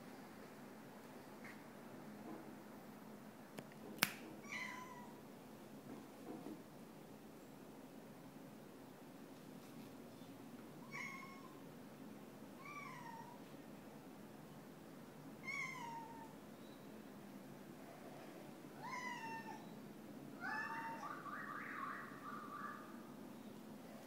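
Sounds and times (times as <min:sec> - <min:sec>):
cat meowing: 0:04.4 - 0:05.2, 0:10.9 - 0:11.6, 0:15.4 - 0:16.4, 0:18.8 - 0:19.8, 0:20.4 - 0:21.0.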